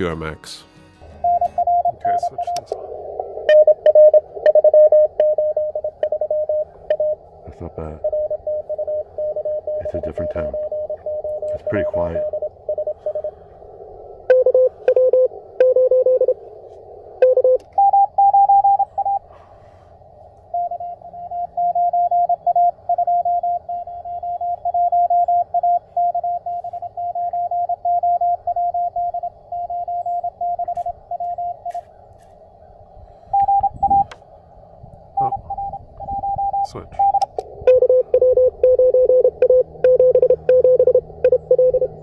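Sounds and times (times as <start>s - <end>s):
morse code tones: 0.0s - 13.4s, 14.3s - 16.4s, 17.2s - 19.3s, 20.5s - 31.8s, 33.3s - 34.1s, 35.1s - 42.0s
radio receiver hiss: 1.2s - 9.0s.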